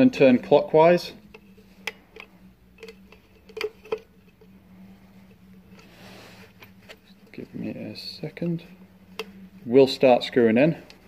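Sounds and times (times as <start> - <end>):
low steady hum: 0.0 - 11.0
soft gas hiss: 0.1 - 11.0.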